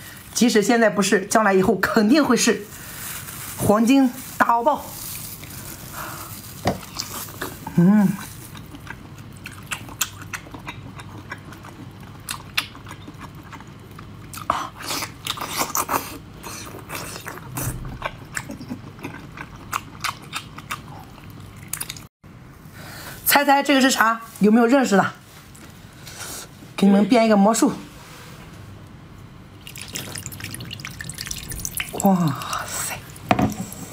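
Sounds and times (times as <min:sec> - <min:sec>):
close-up biting and chewing: 0:08.3 - 0:22.1.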